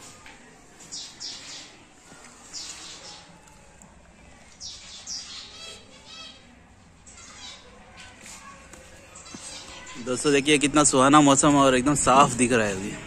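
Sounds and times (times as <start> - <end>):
bird chirping: 0.9 - 1.8, 4.6 - 6.5.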